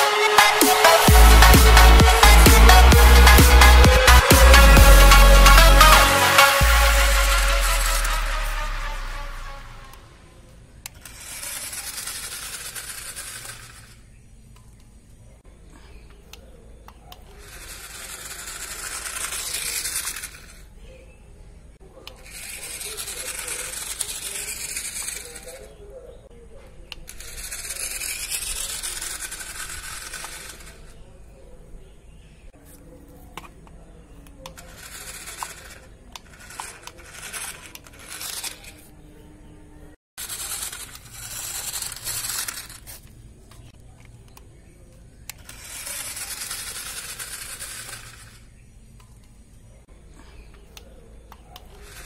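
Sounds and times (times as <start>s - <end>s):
toy truck gears rattling and grinding: 0.6s - 10.0s, 10.8s - 14.9s, 15.7s - 20.8s, 22.0s - 25.8s, 26.8s - 31.1s, 33.2s - 38.9s, 40.2s - 49.4s, 50.1s - 52.0s.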